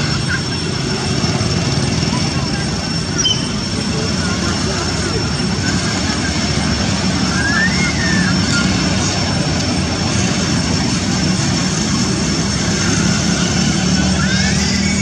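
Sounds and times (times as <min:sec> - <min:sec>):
loud engine-like drone: 0:00.0 - 0:15.0
faint call rising and falling: 0:02.2 - 0:10.8, 0:12.4 - 0:15.0.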